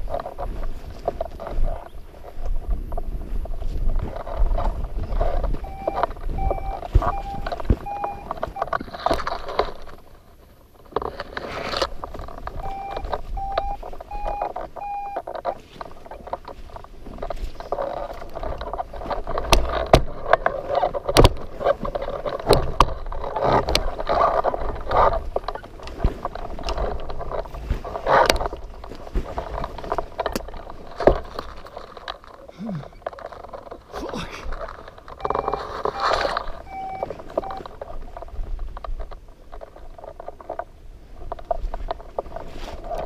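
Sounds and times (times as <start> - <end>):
wind buffeting microphone: 0.0 - 9.0
harness knocks and clicks: 0.0 - 10.1, 10.8 - 43.0
variometer short rising beeps: 5.6 - 8.7, 12.6 - 15.2, 35.2 - 37.6.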